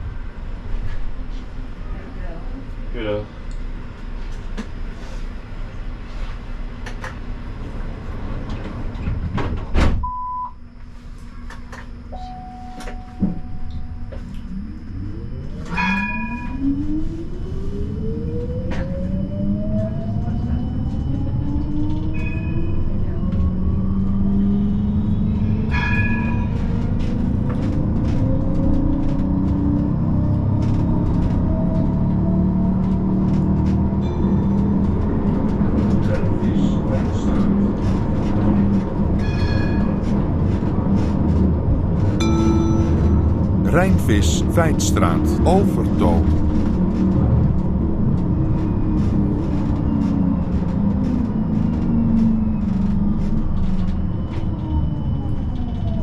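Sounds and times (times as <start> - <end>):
short beeps: 12.2 - 14.0.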